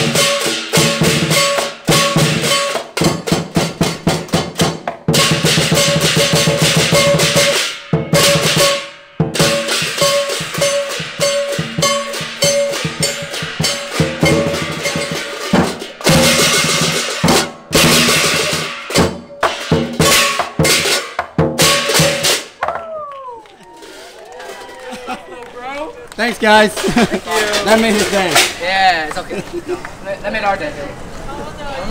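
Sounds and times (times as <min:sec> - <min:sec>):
brass cymbals crashing: 0:00.0 - 0:22.6
drum beaten in fast strokes: 0:00.0 - 0:22.8.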